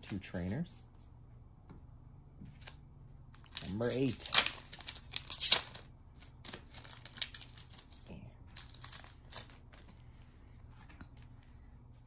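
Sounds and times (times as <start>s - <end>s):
foil wrapper crinkling and tearing: 3.4s - 10.0s.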